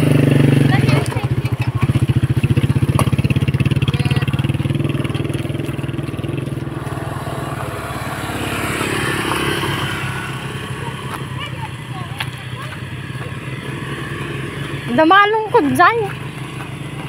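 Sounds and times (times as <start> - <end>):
motorcycle engine running: 0.0 - 17.0
second motorcycle engine: 0.0 - 17.0
tyres on gravel: 0.0 - 17.0.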